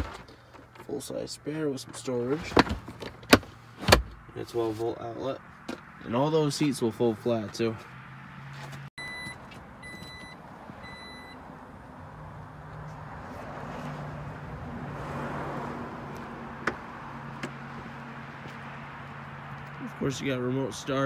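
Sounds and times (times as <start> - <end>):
short warning beeps: 9.0 - 11.4.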